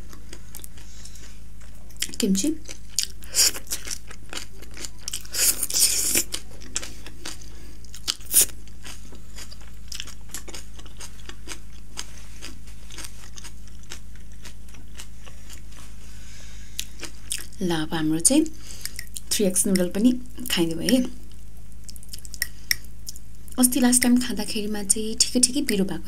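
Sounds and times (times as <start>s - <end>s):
crunchy chewing: 0.0s - 17.6s.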